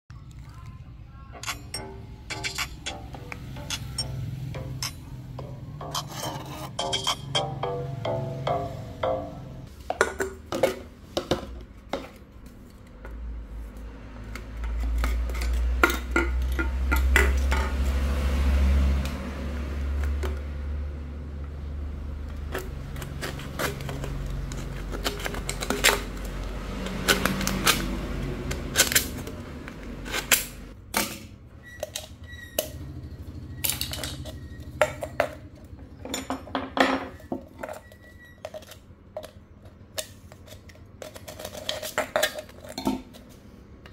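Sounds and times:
knife cutting metal can: 22.4s - 29.4s.

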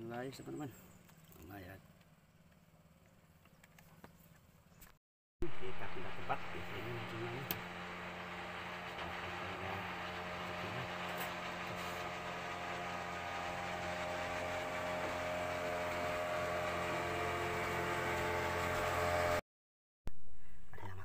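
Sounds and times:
engine running steadily: 5.4s - 19.4s.

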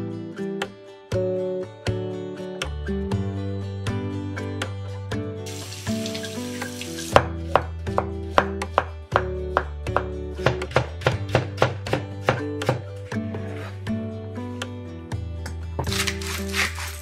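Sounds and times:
background music: 0.0s - 17.0s
running tap water: 5.5s - 7.2s
knife chopping on wooden board: 7.0s - 12.9s.

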